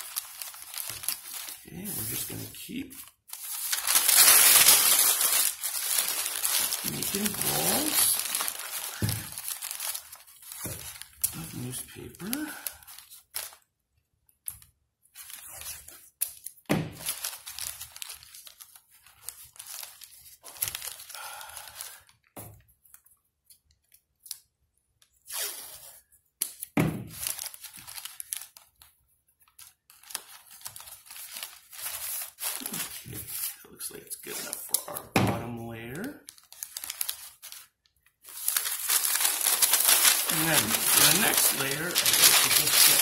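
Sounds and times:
tape tearing: 0:00.0 - 0:12.4, 0:25.2 - 0:28.6, 0:38.3 - 0:43.0
newspaper crinkling: 0:00.0 - 0:13.6, 0:14.5 - 0:22.3, 0:25.3 - 0:43.0.

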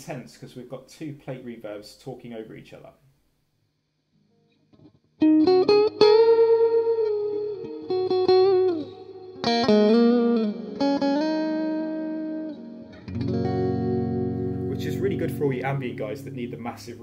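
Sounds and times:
electric guitar chords with reverb: 0:04.7 - 0:17.0.

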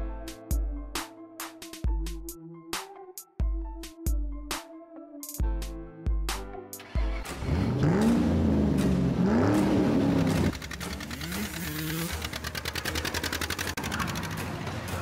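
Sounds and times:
dirt bike engine revving: 0:07.0 - 0:14.4.

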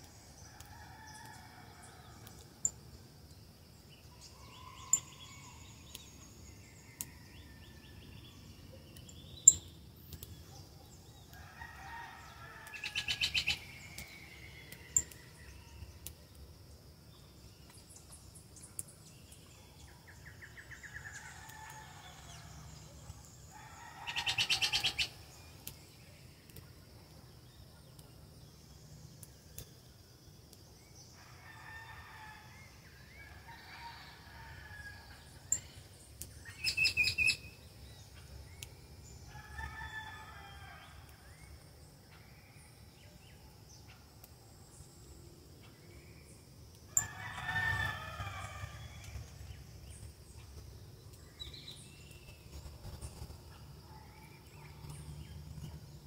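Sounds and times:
rooster crowing: 0:47.0 - 0:48.8.

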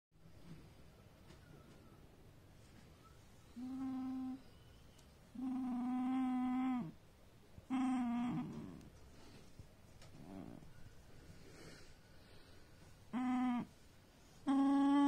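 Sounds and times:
dog whining: 0:03.0 - 0:07.0, 0:07.6 - 0:09.0, 0:10.1 - 0:10.9, 0:13.1 - 0:15.0.

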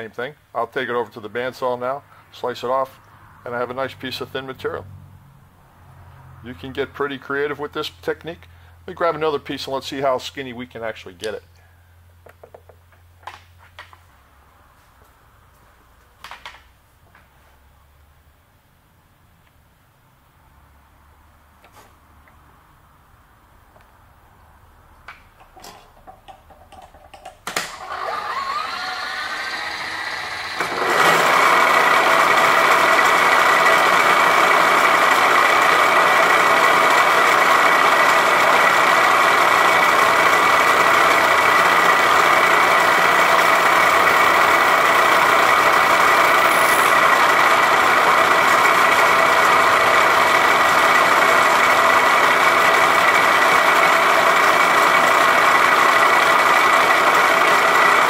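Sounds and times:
milling spindle winding up: 0:27.5 - 0:58.0
end mill cutting metal: 0:27.6 - 0:58.0.

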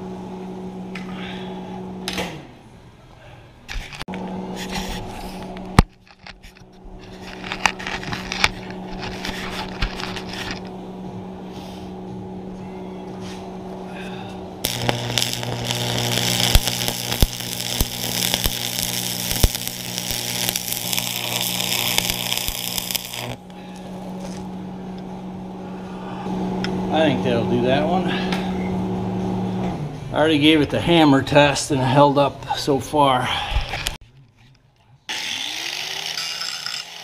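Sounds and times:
electrical hum: 0:04.1 - 0:30.4
welding arc crackling: 0:14.6 - 0:24.5.

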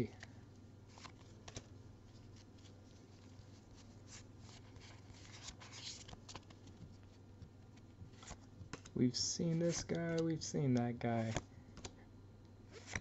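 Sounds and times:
steady low hum: 0:00.0 - 0:13.0
cards sliding and flicking: 0:00.9 - 0:02.8, 0:03.8 - 0:07.1, 0:08.1 - 0:12.0, 0:12.7 - 0:13.0.

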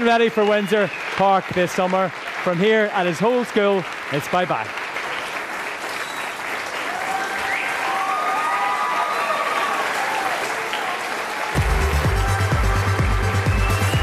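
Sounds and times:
audience applauding: 0:00.0 - 0:14.0
electronic music with bass beat: 0:11.6 - 0:14.0.

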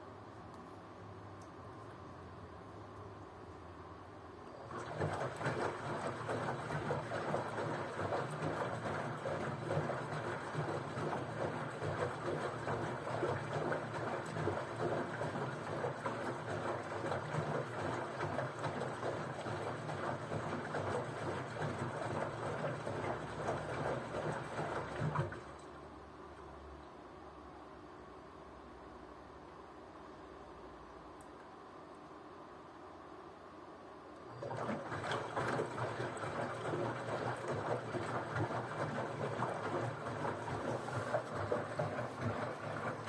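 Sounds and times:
water sloshing in washing machine drum: 0:04.6 - 0:25.8, 0:34.3 - 0:43.0.

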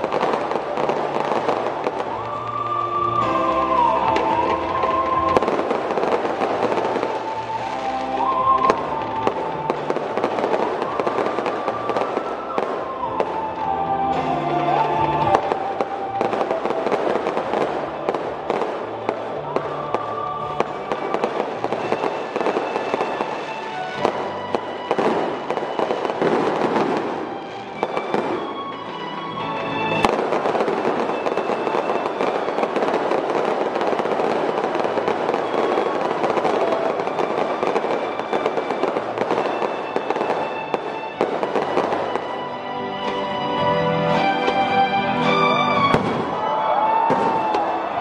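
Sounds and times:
fireworks bursting and crackling: 0:00.0 - 0:48.0
music: 0:00.0 - 0:48.0
sharp firework bang: 0:45.9 - 0:46.4, 0:47.0 - 0:47.7.

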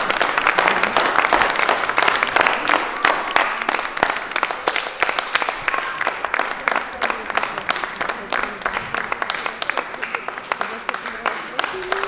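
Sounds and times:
audience applauding: 0:00.0 - 0:12.0.

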